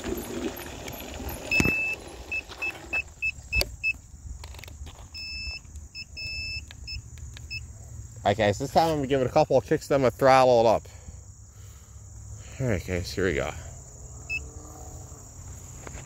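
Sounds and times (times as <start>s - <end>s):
electronic scooter beeps: 0.0s - 4.0s, 5.0s - 7.7s, 14.2s - 14.5s.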